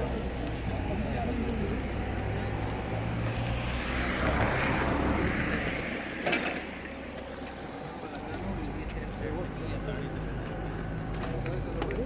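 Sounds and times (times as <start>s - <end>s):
low engine hum: 0.0s - 12.0s
vehicle passing: 0.0s - 12.0s.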